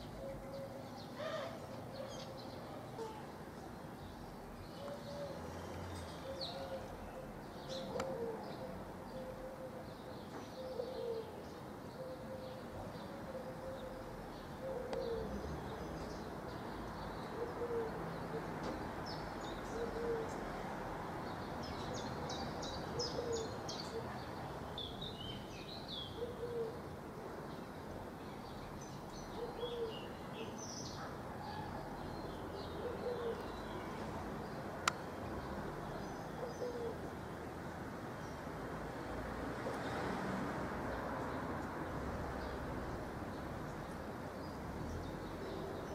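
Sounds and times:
dove cooing: 0:00.0 - 0:03.3, 0:04.7 - 0:05.6, 0:06.2 - 0:16.0, 0:17.3 - 0:18.6, 0:19.6 - 0:20.4, 0:22.9 - 0:24.2, 0:26.1 - 0:27.4, 0:29.4 - 0:30.1, 0:32.6 - 0:33.6, 0:36.4 - 0:37.1
outdoor background noise: 0:00.0 - 0:45.9.

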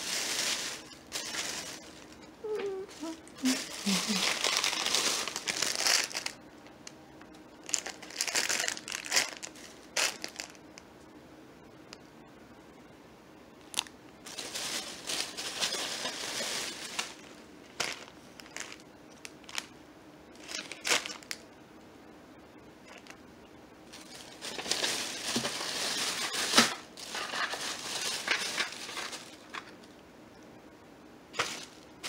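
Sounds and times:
plastic bag crinkling: 0:00.0 - 0:02.2, 0:02.9 - 0:06.4, 0:07.6 - 0:10.6, 0:13.6 - 0:19.7, 0:20.4 - 0:21.4, 0:22.9 - 0:23.2, 0:23.9 - 0:29.9, 0:31.4 - 0:32.0.

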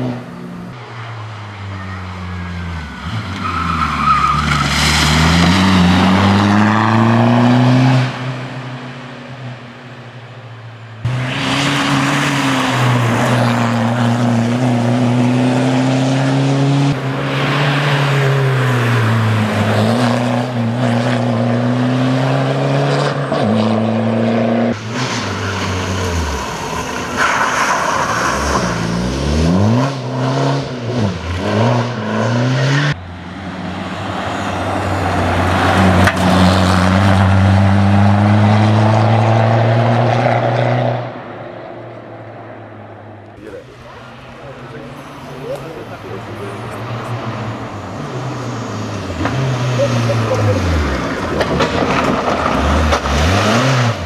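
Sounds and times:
rally car engine revving past: 0:04.7 - 0:08.5.

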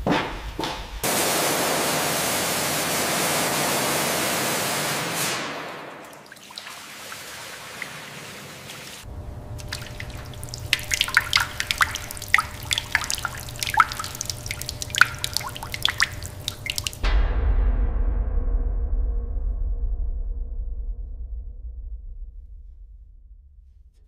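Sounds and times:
spraying water hiss: 0:01.1 - 0:17.0
water dripping on steel: 0:06.0 - 0:17.0
low hum: 0:09.1 - 0:22.4.

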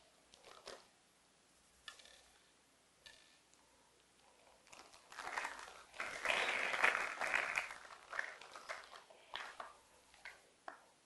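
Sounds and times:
plastic bag crinkling: 0:04.6 - 0:10.4.

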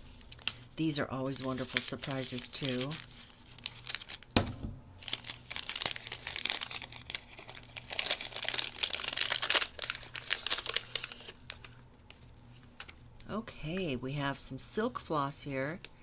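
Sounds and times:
paper wrapping crinkling and tearing: 0:00.0 - 0:04.4, 0:05.0 - 0:13.0.

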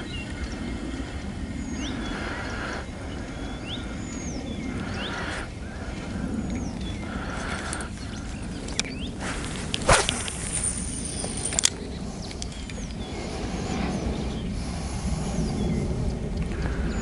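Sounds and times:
fishing line whining out: 0:08.7 - 0:12.7.

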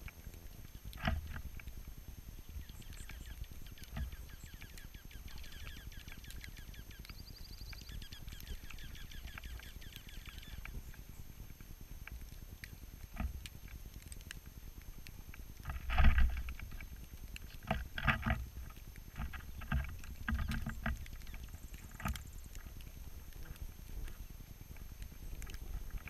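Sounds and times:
wings fluttering: 0:00.6 - 0:13.7, 0:15.6 - 0:26.0
birds chirping: 0:02.4 - 0:11.4, 0:19.2 - 0:22.8.

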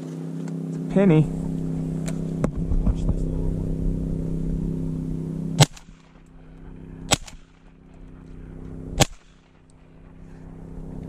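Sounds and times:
steady low hum: 0:00.0 - 0:11.0
shotgun shots: 0:05.6 - 0:06.3, 0:07.1 - 0:07.8, 0:08.9 - 0:09.7.

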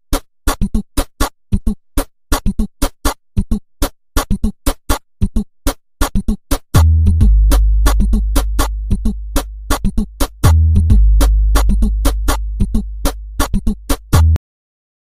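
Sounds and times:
drum-machine beat: 0:00.0 - 0:14.4
deep held bass and synthesizer: 0:06.8 - 0:14.4.

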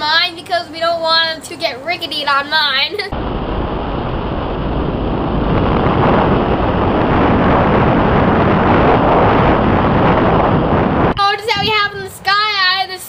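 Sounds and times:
wind rushing over microphone: 0:03.1 - 0:12.7.

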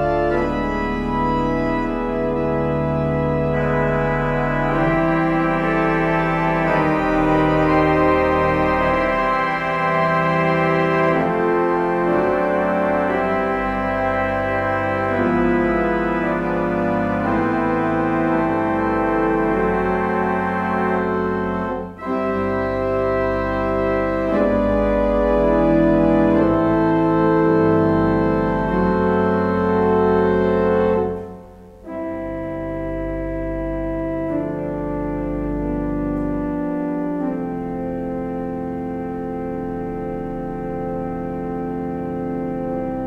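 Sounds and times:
church organ chords: 0:00.0 - 0:43.0.

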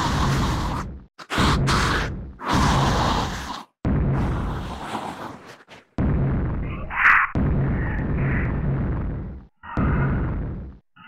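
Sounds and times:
low rumbling dinosaur growl: 0:00.0 - 0:05.6.

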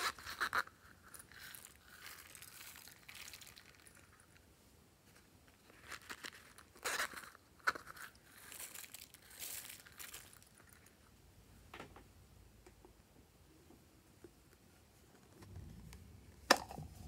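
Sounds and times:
plastic toy crinkling: 0:00.0 - 0:04.4, 0:05.1 - 0:11.0
sequins hissing patter: 0:08.3 - 0:10.8.

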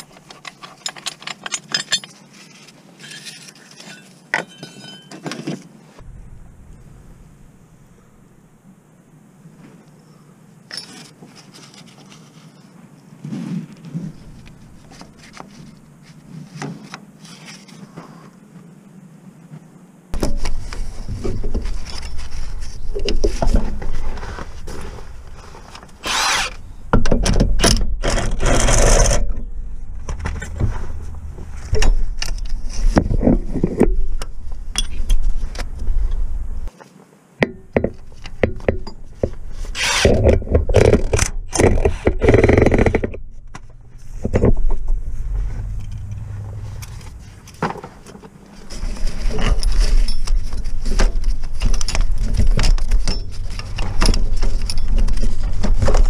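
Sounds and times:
socket wrench clinking and scraping: 0:00.0 - 0:02.2, 0:03.0 - 0:05.4, 0:34.7 - 0:35.2.

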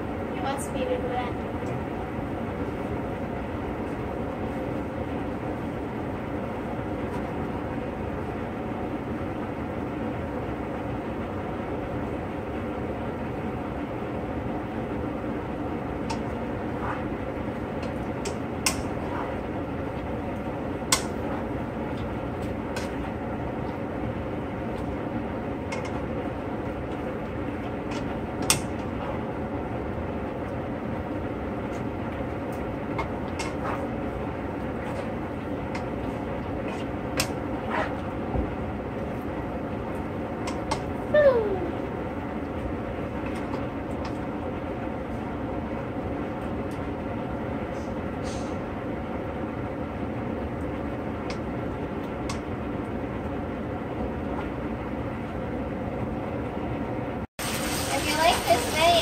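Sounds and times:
liquid bubbling in a skillet: 0:12.0 - 0:41.0.

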